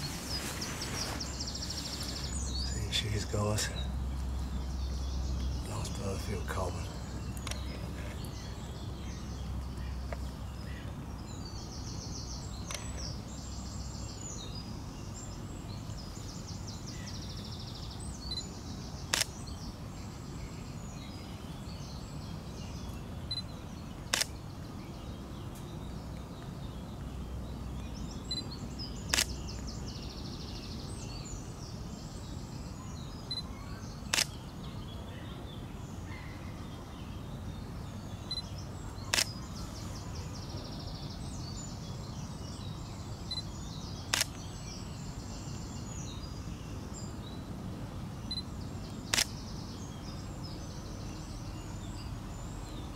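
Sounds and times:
small birds singing: 0.0 - 52.9
camera shutter clicks: 19.1 - 19.4, 24.1 - 24.4, 29.1 - 29.4, 34.1 - 34.4, 39.1 - 39.4, 44.1 - 44.4, 49.1 - 49.4.

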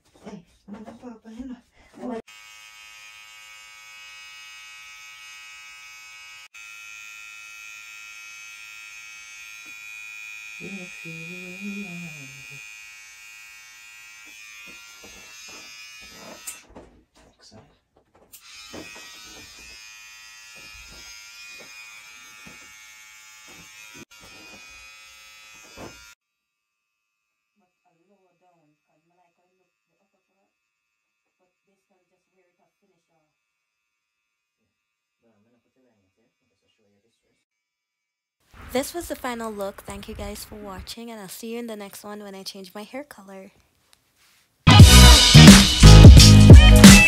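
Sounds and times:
electric hair clippers buzzing: 2.3 - 16.6, 18.4 - 26.2, 44.7 - 47.0.

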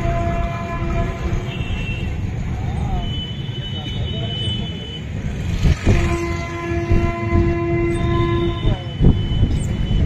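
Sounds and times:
low traffic rumble: 0.0 - 10.0
horn long note: 5.7 - 8.6.

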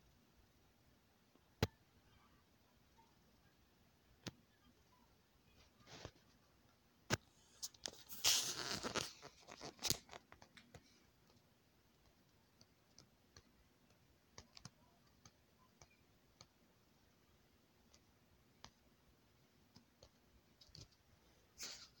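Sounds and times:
phone rustling against fabric: 7.4 - 10.9
faint clicks and ticks: 8.9 - 21.5.

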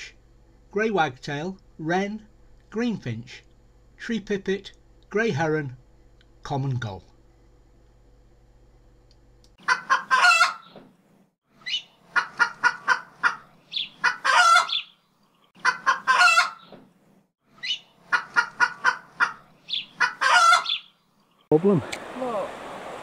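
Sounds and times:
chicken clucking: 9.6 - 10.8, 11.7 - 14.8, 15.6 - 16.7, 17.6 - 20.8
chicken crowing: 9.6 - 10.8, 12.1 - 14.9, 15.6 - 16.7, 18.1 - 20.9.

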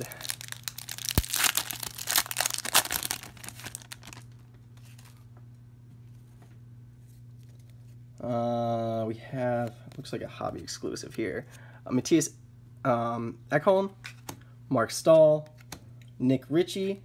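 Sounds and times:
foil wrapper tearing and crinkling: 0.0 - 4.4
cards rustling: 0.0 - 5.2.

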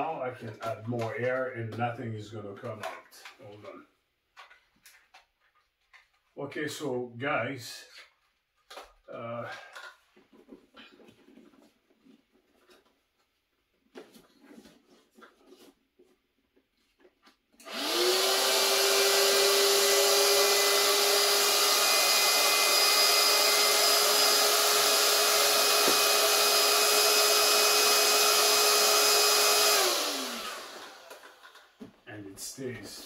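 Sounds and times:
electric air pump whining: 17.6 - 31.8.

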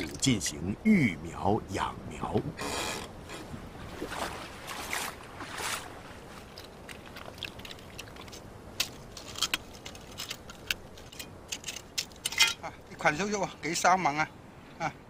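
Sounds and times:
soft splashy swishes: 3.8 - 8.4.

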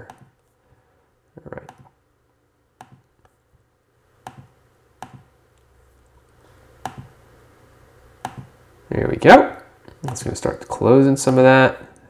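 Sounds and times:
computer mouse clicks: 0.0 - 0.3, 2.8 - 3.1, 4.2 - 5.7, 6.8 - 7.1, 8.2 - 8.5.

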